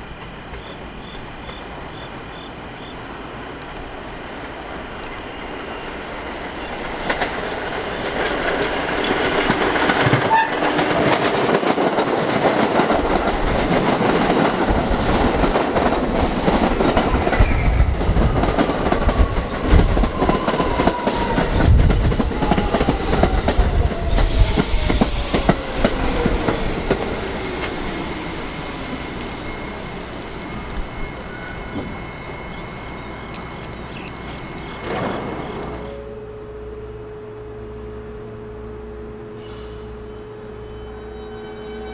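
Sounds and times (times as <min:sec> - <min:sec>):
subway train passing: 0:00.0 - 0:41.9
falling whine: 0:17.2 - 0:41.0.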